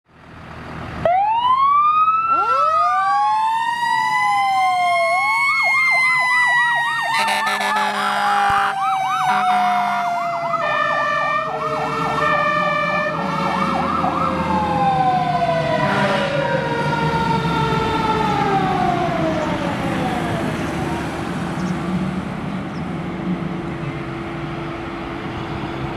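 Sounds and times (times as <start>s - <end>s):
electronic siren wail and yelp: 1.1s - 20.2s
air horn blasts: 7.1s - 11.0s, 11.6s - 14.0s, 15.8s - 16.4s.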